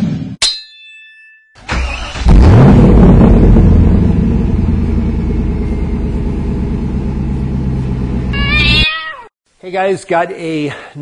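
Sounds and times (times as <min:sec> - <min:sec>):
car engine running: 0:02.4 - 0:08.4
cat meowing: 0:08.3 - 0:09.3.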